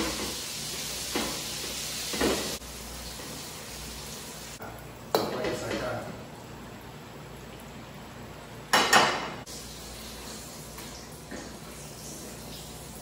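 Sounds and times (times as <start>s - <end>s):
fish frying in hot oil: 0.0s - 6.0s.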